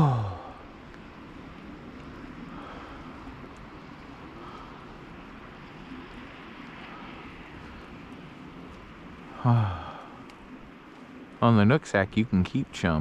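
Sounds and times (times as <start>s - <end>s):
low outdoor rumble and hiss: 0.0s - 13.0s.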